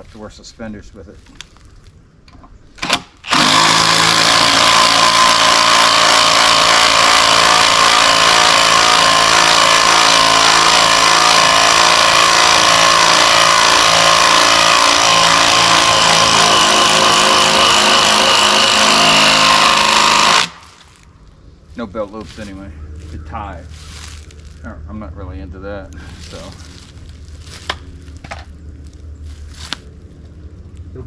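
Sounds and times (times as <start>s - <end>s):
chainsaw cutting wood: 2.8s - 21.0s.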